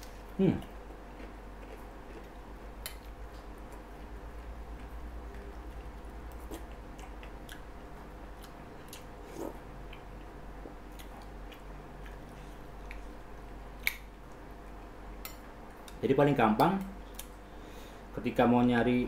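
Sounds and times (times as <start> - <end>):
steady low hum: 0.0 - 19.0
chewing: 0.6 - 7.7.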